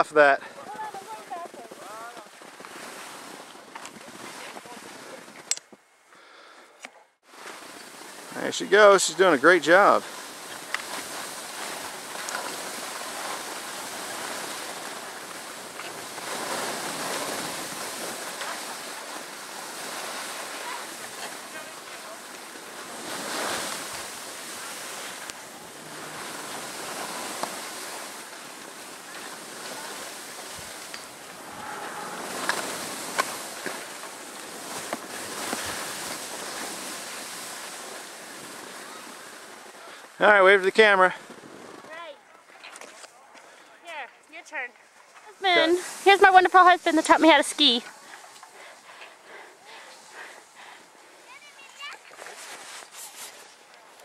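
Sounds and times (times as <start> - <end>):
skis sliding over snow: 0.0 - 5.5, 7.3 - 54.0
wind on microphone: 30.6 - 33.6.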